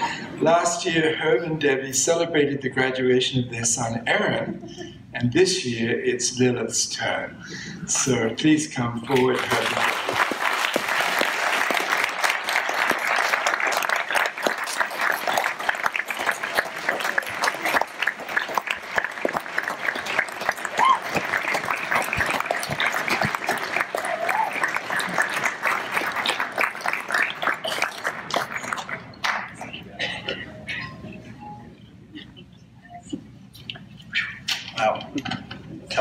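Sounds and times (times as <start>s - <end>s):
audience applauding: 9.1s - 29.8s.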